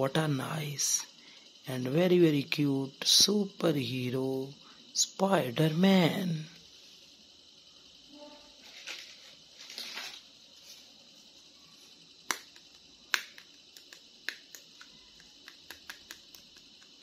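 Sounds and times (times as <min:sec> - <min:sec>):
plastic brushing rustle: 0:08.6 - 0:11.0.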